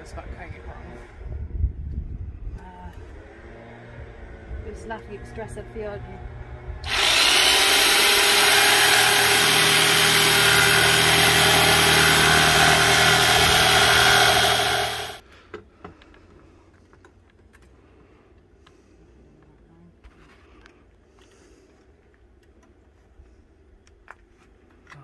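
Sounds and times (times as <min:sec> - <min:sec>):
jigsaw cutting plywood: 0:06.8 - 0:15.2.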